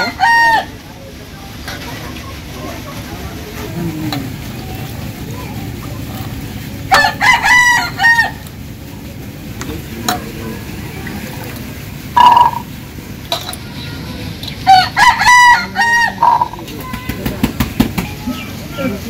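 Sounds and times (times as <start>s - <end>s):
rooster crowing: 0.0s - 0.8s, 6.9s - 8.5s, 14.7s - 16.6s.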